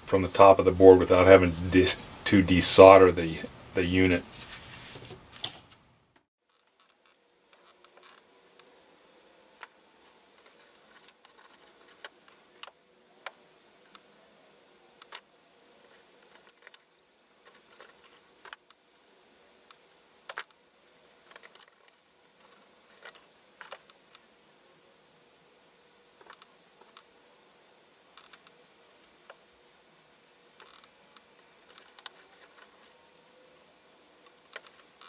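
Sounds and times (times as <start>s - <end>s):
small clicks of wire leads: 28.2s - 28.5s, 30.6s - 32.9s.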